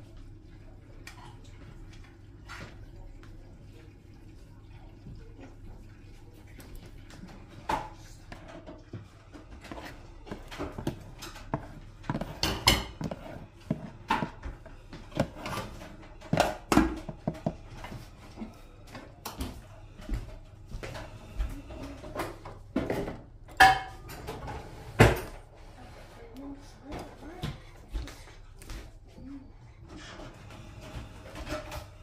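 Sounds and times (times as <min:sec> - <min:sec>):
metal utensil scraping a container: 0:09.5 - 0:14.4.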